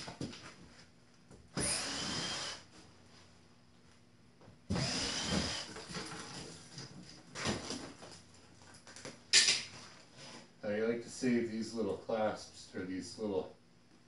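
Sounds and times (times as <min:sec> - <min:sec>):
cordless drill motor whine: 0:01.6 - 0:02.7, 0:04.7 - 0:05.7.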